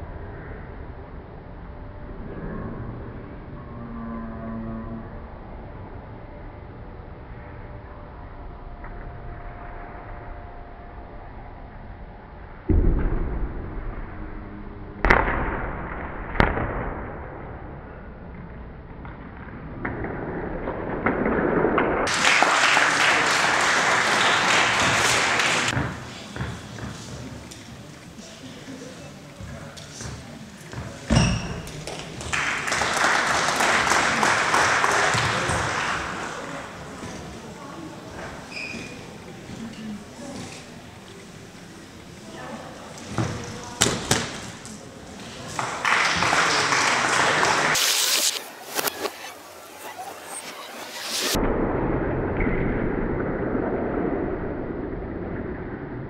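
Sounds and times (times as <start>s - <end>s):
crowd noise in hall: 0.0s - 56.0s
audience applauding: 22.1s - 25.8s, 31.8s - 36.8s, 45.5s - 48.2s.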